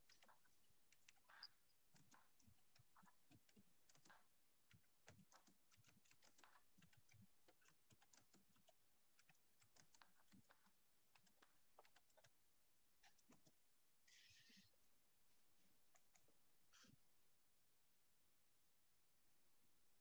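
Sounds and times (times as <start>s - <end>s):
typing on computer keyboard: 0.0s - 12.4s, 13.0s - 13.6s.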